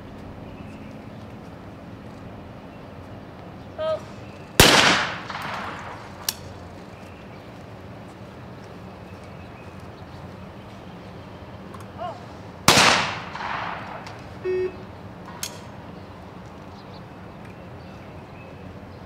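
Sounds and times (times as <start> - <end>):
shotgun shot: 4.6 - 6.2, 12.7 - 14.2.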